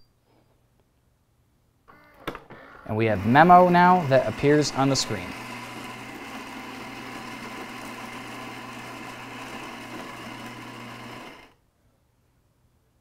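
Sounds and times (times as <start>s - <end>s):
coffee grinder motor whirring: 3.0s - 11.6s.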